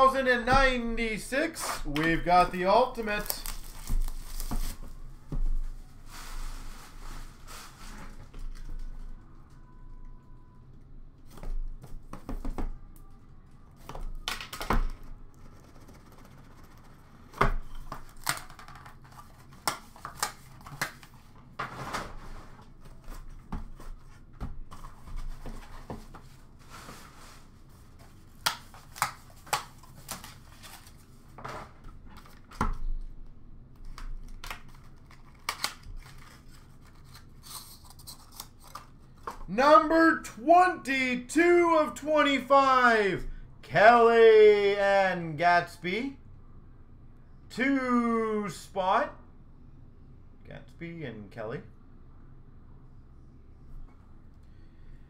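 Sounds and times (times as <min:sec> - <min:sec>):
cardboard and packaging rustling: 0:02.2 - 0:09.1, 0:17.6 - 0:33.0, 0:33.8 - 0:39.5.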